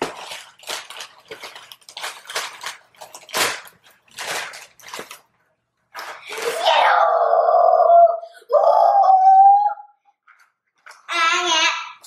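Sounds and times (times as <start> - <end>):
paper bag crinkling: 0.0 - 6.6.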